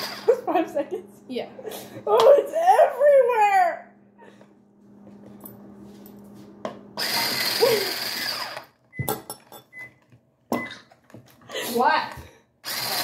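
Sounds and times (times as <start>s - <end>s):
electric hand mixer running: 0.0s - 0.6s, 7.0s - 8.8s, 12.6s - 13.0s.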